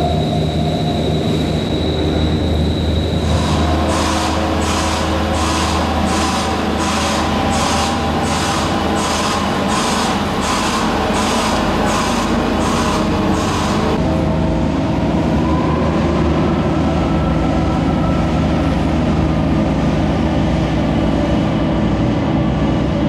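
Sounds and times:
pulsing hiss warning alarm: 0.0 - 14.0
diesel engine low rumble: 0.0 - 23.0.

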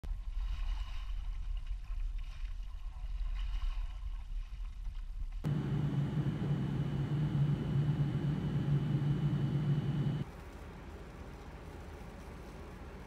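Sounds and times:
low rumble: 5.5 - 10.2
machinery hum: 5.5 - 10.2.

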